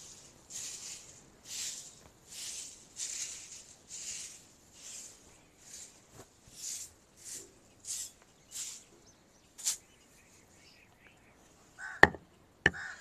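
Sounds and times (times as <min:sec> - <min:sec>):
sharp knocks: 0:12.0 - 0:12.8.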